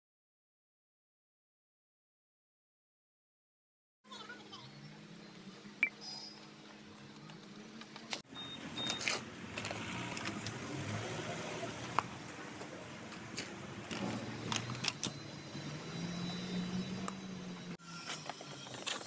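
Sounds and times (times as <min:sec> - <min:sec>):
tools scraping concrete and gravel: 0:17.8 - 0:19.0.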